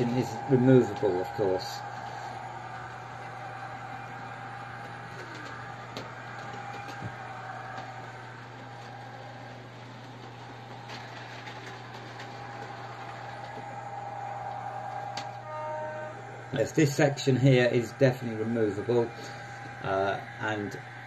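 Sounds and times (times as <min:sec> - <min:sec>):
wheels rolling on track: 0:00.0 - 0:15.5
model train motor whine: 0:00.0 - 0:21.0.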